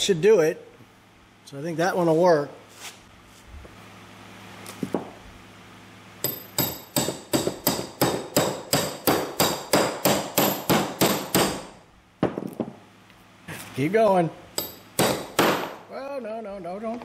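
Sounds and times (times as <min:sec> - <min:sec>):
hammer tapping metal: 0:06.2 - 0:11.7, 0:14.6 - 0:15.8.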